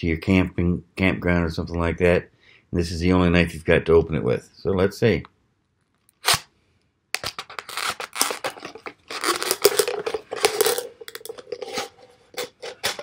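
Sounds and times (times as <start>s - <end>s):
knife sawing plastic bottle: 7.4s - 13.0s.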